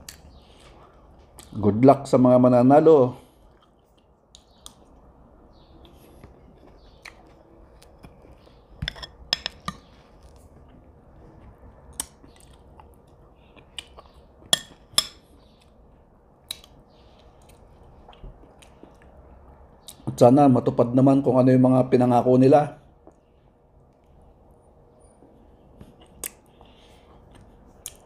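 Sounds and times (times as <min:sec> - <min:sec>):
chewing: 0:03.4 - 0:04.9, 0:05.8 - 0:15.8, 0:25.2 - 0:28.0.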